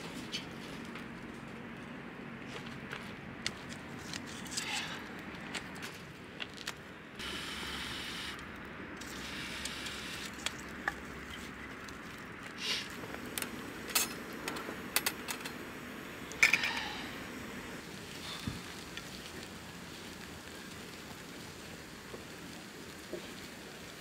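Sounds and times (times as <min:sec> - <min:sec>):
faint steady hiss: 0:12.5 - 0:24.0.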